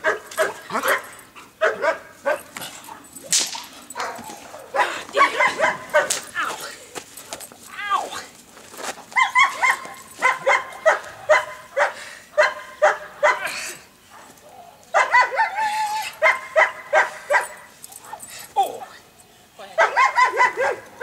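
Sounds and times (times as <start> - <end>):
dog barking: 0.0 - 2.5, 4.0 - 6.3, 9.2 - 18.2, 19.8 - 21.0.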